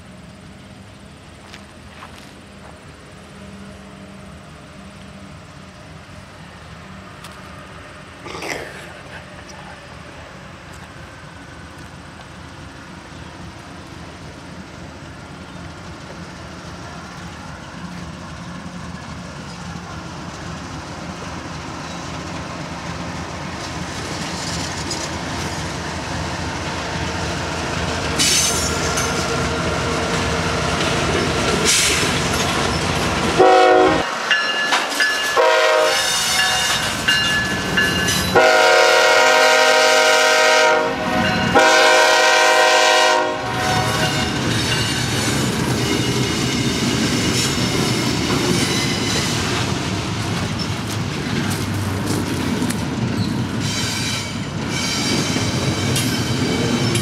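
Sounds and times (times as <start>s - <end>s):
diesel locomotive engine and wheels: 0.0s - 57.0s
train air horn blasts: 33.4s - 34.1s, 35.4s - 36.9s, 38.3s - 44.4s.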